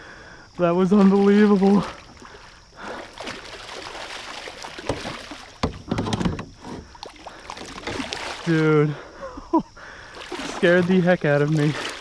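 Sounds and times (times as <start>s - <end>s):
fish splashing in water: 0.9s - 8.6s, 10.0s - 12.0s
knocks against canoe: 4.8s - 6.9s.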